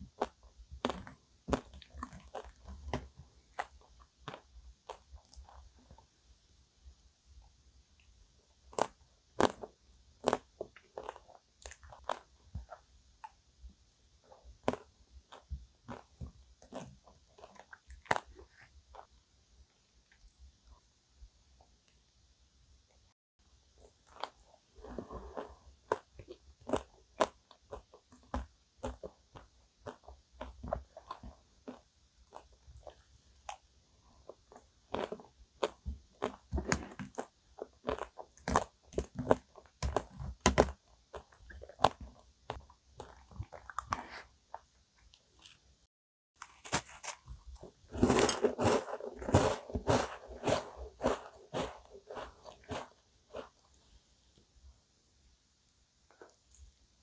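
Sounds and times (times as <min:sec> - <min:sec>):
chewing: 0:00.2 - 0:06.0, 0:08.7 - 0:13.4, 0:14.6 - 0:19.2, 0:23.8 - 0:33.6, 0:34.2 - 0:45.6, 0:47.2 - 0:53.8
crunching frozen ice cream cake: 0:00.2 - 0:06.0, 0:08.6 - 0:12.8, 0:14.3 - 0:19.2, 0:23.8 - 0:33.6, 0:34.2 - 0:44.6, 0:46.4 - 0:53.7.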